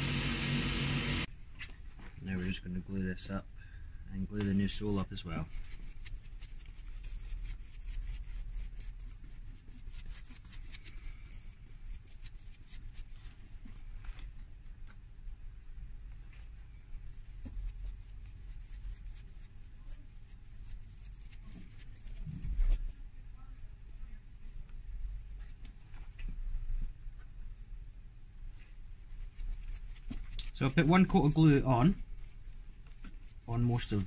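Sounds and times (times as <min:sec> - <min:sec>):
glue brush scratching: 0:05.4 - 0:13.6, 0:17.4 - 0:24.2, 0:29.1 - 0:34.0.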